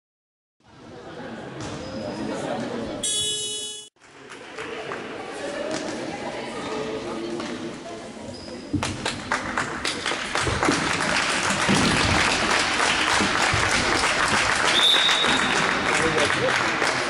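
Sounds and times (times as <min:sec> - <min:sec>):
spectators applauding: 0:09.3 - 0:17.0.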